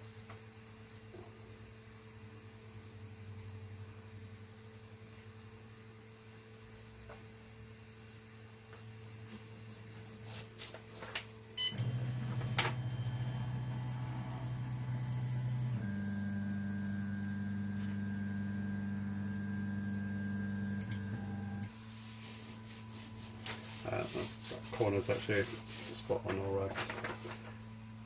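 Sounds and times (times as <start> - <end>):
stepper motors humming: 11.6 - 16.6.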